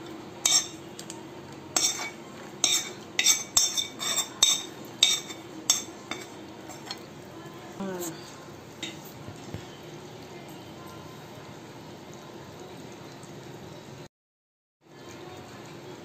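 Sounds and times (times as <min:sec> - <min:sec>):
metal spoon clinking on pan: 0:00.4 - 0:01.1, 0:01.8 - 0:07.0.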